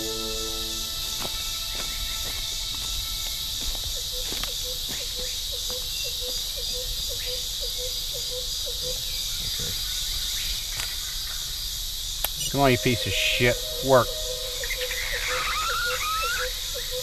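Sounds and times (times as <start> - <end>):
insects chorus: 0.0 - 17.0.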